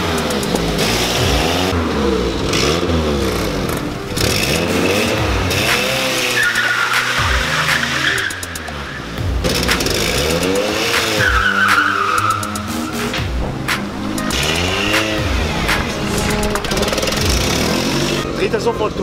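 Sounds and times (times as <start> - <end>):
car engine revving: 0.0 - 19.0
tyre squeal: 5.8 - 9.2, 11.0 - 13.2.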